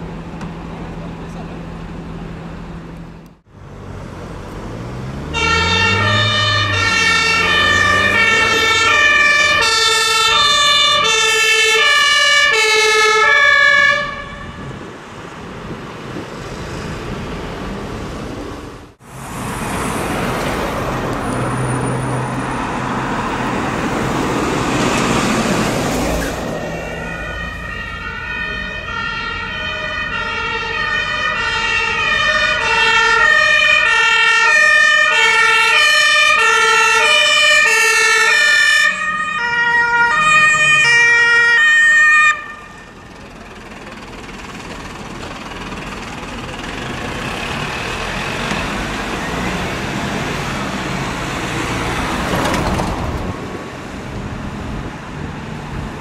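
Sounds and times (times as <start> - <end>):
heavy vehicle rumbling past: 0.0 - 56.0
two-tone emergency sirens: 5.2 - 14.8, 23.2 - 44.0.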